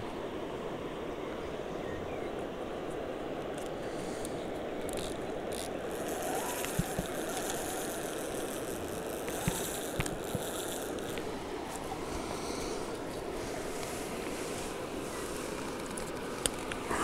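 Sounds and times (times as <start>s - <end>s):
steady background noise: 0.0s - 17.0s
fishing reel clicks and rattles: 4.8s - 11.3s.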